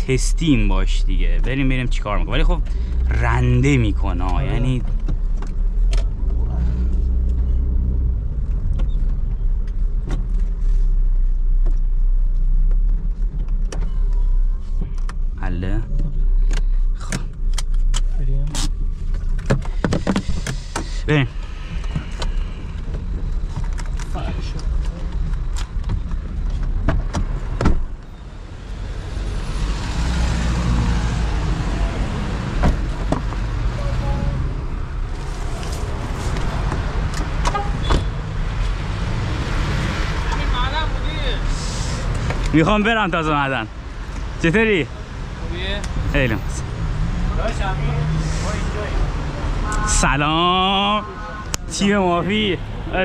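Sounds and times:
car engine rumbling: 0:00.0 - 0:53.0.

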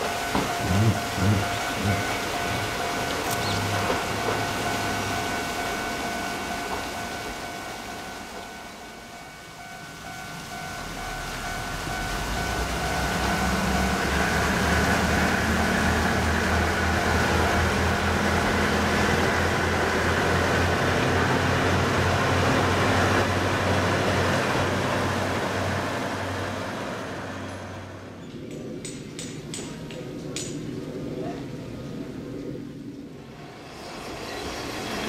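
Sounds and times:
diesel engine rumble: 0:00.0 - 0:05.3
wheels on rail: 0:00.0 - 0:30.7, 0:33.2 - 0:35.0.

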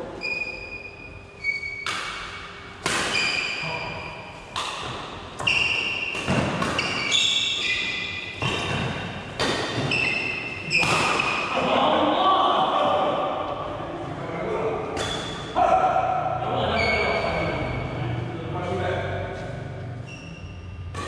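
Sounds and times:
rackets hitting shuttlecock: 0:01.7 - 0:03.6, 0:04.5 - 0:11.6, 0:14.9 - 0:16.3.

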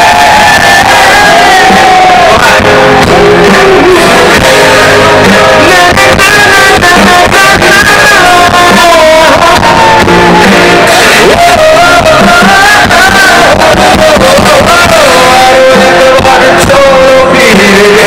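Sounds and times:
drums: 0:00.0 - 0:18.0
electric guitar: 0:00.0 - 0:18.0
person singing: 0:00.0 - 0:18.0.

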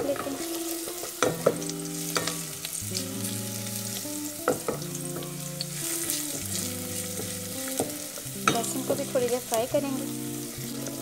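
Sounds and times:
onion sizzling in oil: 0:00.0 - 0:11.0
wooden spoon knocking on pot: 0:01.0 - 0:02.4, 0:04.4 - 0:05.4, 0:07.1 - 0:09.2.

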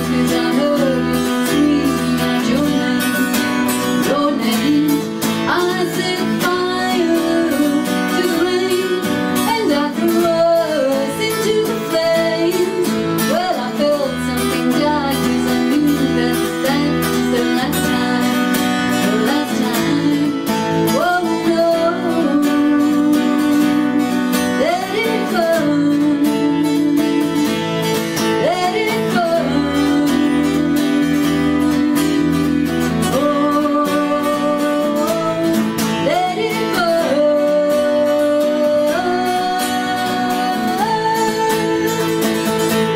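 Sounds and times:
strummed acoustic guitar: 0:00.0 - 0:42.9
woman singing: 0:00.0 - 0:42.9.

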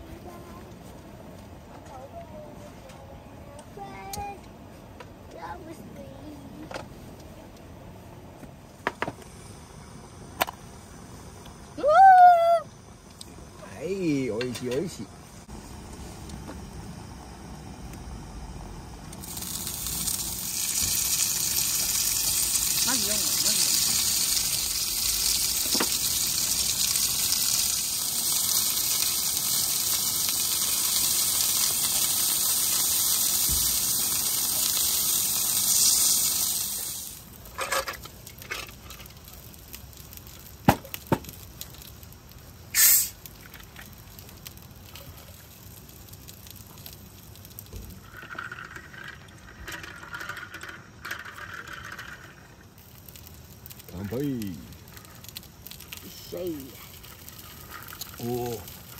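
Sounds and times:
pork sizzling in a frying pan: 0:16.6 - 0:58.9.

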